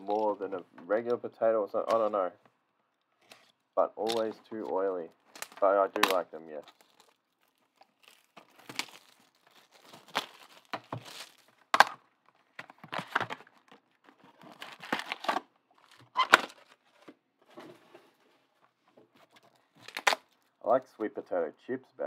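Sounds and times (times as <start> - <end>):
card pack wrappers crinkling: 3.2 - 17.0, 19.2 - 20.6.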